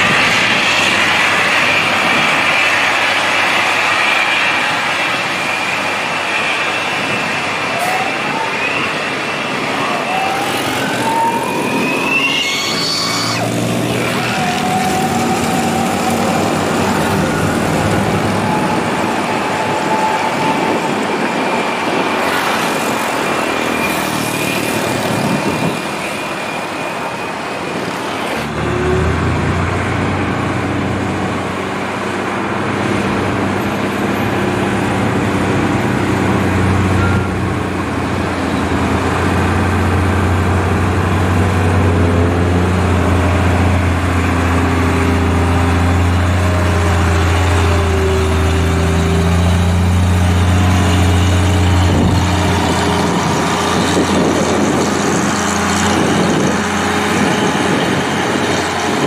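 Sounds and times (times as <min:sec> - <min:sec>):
truck diesel engines revving: 0:00.0 - 0:59.0
truck diesel rumble: 0:10.4 - 0:26.0, 0:27.6 - 0:59.0.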